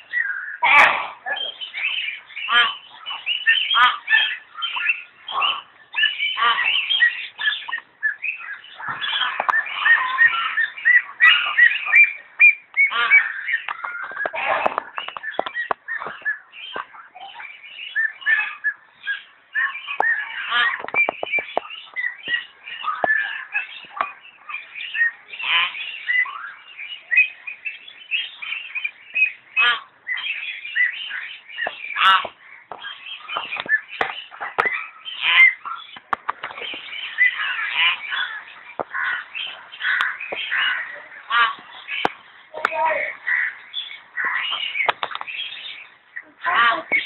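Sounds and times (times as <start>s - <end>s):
myna calling: 0.0s - 47.0s
bird whistles and chirps: 1.4s - 14.3s.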